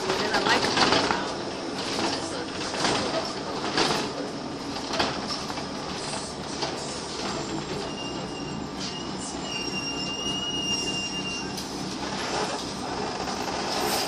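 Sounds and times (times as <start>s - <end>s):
bus diesel engine running: 0.0s - 14.0s
high brake squeal: 7.7s - 11.7s.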